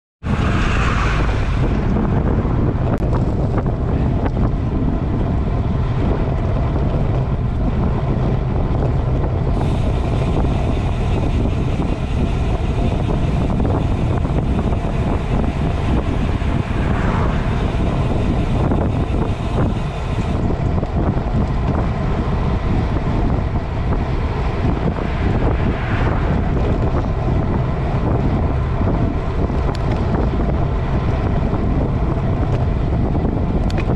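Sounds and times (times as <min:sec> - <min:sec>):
wind buffeting microphone: 0:00.2 - 0:33.9.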